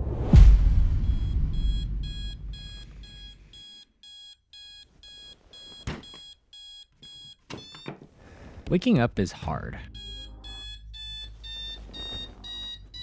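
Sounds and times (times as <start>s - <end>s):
low rumble: 0.0s - 2.8s
alarm clock beeping: 1.0s - 8.0s, 9.3s - 13.0s.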